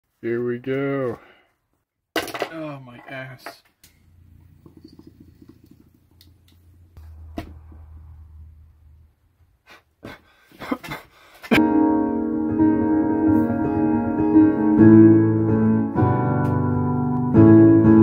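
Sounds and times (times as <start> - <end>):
electric piano chord: 11.6 - 18.0.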